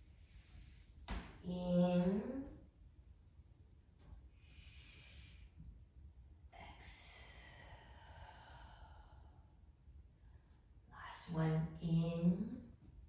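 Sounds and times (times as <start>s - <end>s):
woman breathing slowly: 4.3s - 5.8s, 6.6s - 10.8s.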